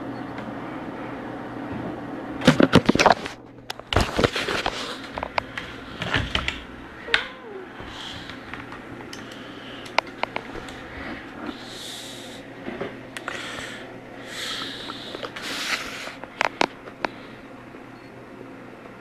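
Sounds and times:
steady low hum: 0:00.0 - 0:19.0
device handling clicks and rubbing: 0:15.2 - 0:17.2.

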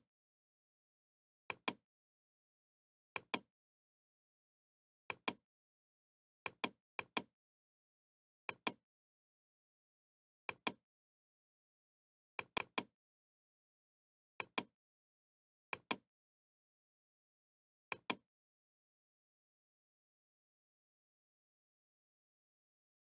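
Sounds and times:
computer mouse button clicking: 0:17.9 - 0:18.2.

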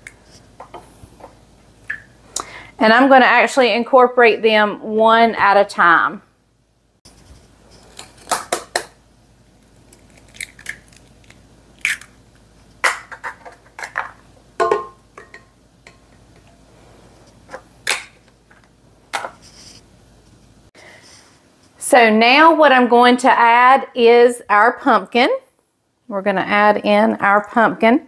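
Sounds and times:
kitchenware clicks and knocks: 0:12.9 - 0:16.2
glass ringing clink: 0:14.6 - 0:15.4.

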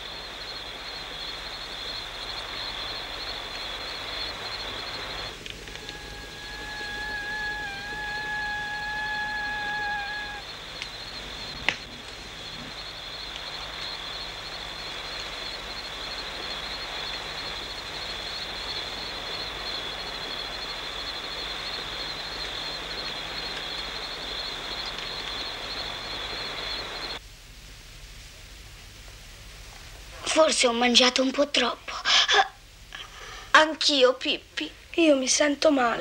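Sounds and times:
crickets chirring: 0:00.0 - 0:27.2
soft hiss: 0:00.0 - 0:36.0.

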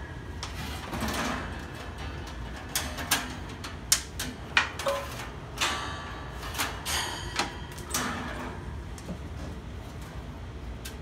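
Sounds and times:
metal grill clicks and rattles: 0:00.8 - 0:08.6.

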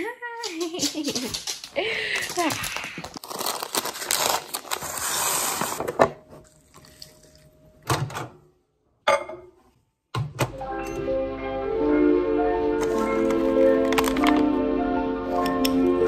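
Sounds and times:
milk pouring: 0:06.4 - 0:07.8
music: 0:10.5 - 0:16.0.

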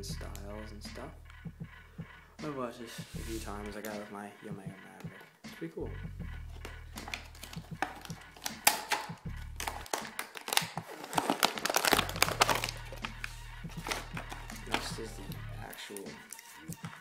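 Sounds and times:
background music: 0:00.0 - 0:17.0
plastic packaging crinkling: 0:06.9 - 0:15.1.

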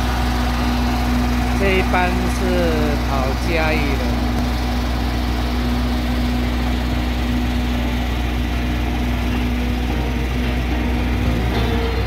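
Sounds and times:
diesel locomotive engine idling: 0:00.0 - 0:12.0.

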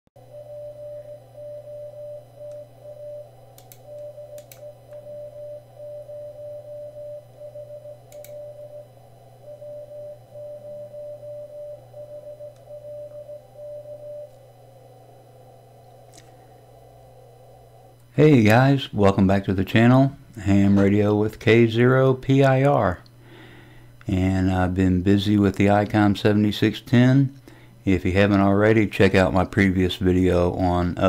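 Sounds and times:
morse code tone: 0:00.2 - 0:14.4
low steady hum: 0:00.2 - 0:31.0.

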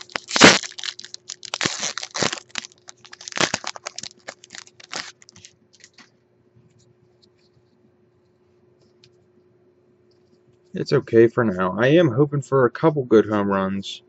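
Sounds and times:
foil wrapper crinkling and tearing: 0:00.0 - 0:06.1.

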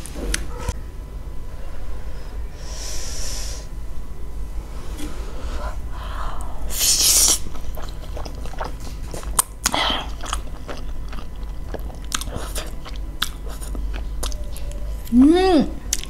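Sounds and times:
wet chewing: 0:07.2 - 0:15.2.

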